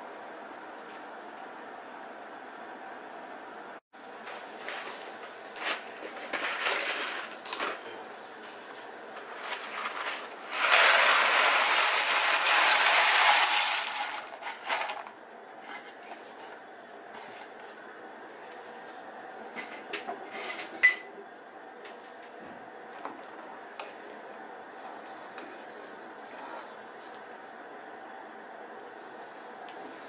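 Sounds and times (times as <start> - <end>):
dry pasta pouring into pot: 10.6 - 15.1.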